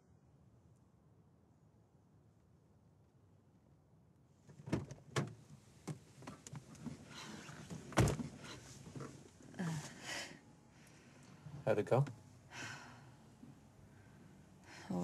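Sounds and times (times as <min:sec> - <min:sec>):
rustling of person climbing in: 0:05.8 - 0:10.0
car door shutting thud: 0:07.9 - 0:08.3.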